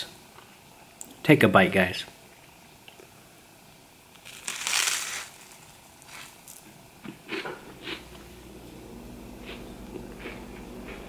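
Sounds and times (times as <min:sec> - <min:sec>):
soft chewing crunches: 0:04.1 - 0:08.2, 0:09.4 - 0:11.0
loud crunch biting toast: 0:04.2 - 0:06.6.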